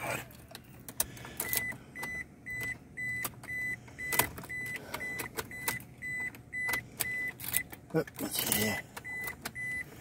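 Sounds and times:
car warning chime beeping: 1.4 - 10.0.

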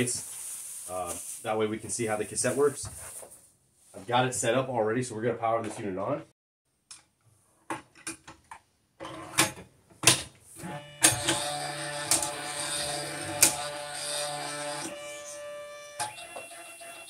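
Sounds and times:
printer motors whirring: 10.6 - 17.0
printer clicks: 11.0 - 12.4.

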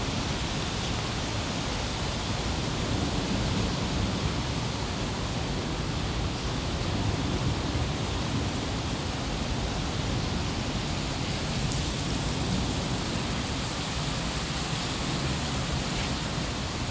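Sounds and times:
heavy rain pouring: 0.0 - 16.9.

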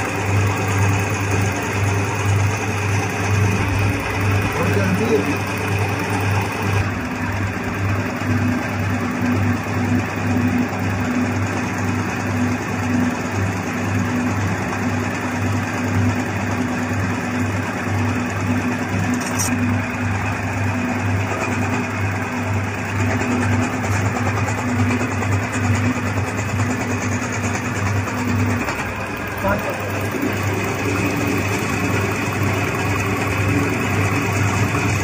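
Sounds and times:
diesel engine throbbing: 1.4 - 10.8.

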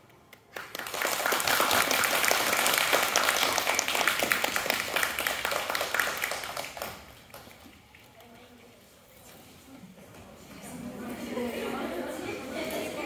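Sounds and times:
crowd applauding: 0.5 - 7.7.

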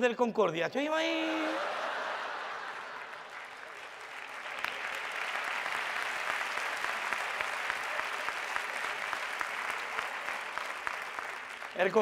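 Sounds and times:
audience applause: 1.3 - 12.0.

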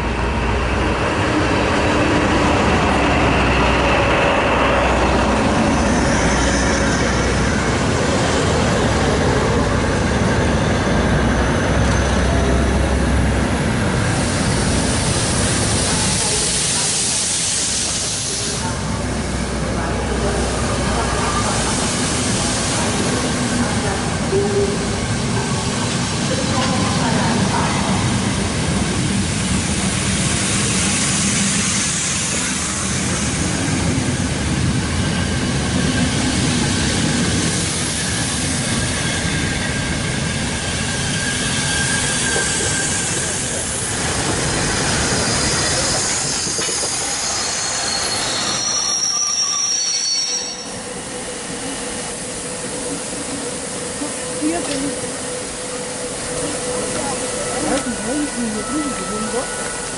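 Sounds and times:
train wheels rumbling on rails: 0.0 - 59.9
high wheel squeal: 38.0 - 43.9, 44.5 - 51.8, 56.7 - 59.9.

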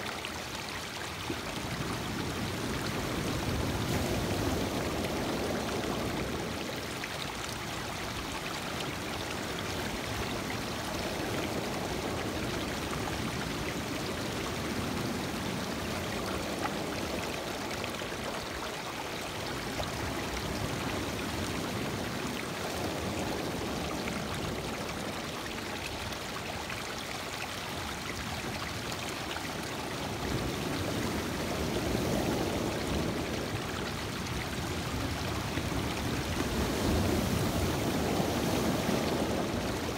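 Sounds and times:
waves washing over stony shore: 29.6 - 39.9.

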